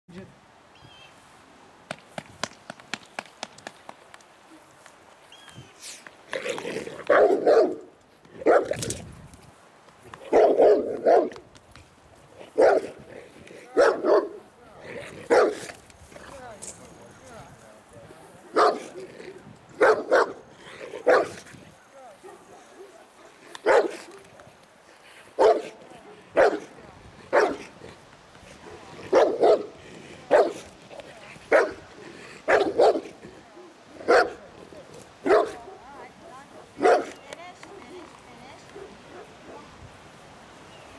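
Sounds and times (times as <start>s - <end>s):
large dog barking: 7.1s - 8.8s, 10.3s - 11.4s, 12.6s - 13.1s, 13.7s - 14.4s, 15.2s - 15.7s, 18.5s - 19.1s, 19.8s - 21.4s, 22.2s - 24.3s, 25.4s - 27.7s, 29.0s - 30.7s, 31.5s - 34.4s, 35.2s - 37.9s.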